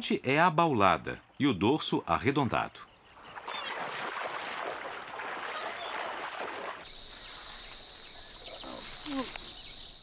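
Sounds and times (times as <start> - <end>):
water splashing and sloshing: 3.0 - 9.5.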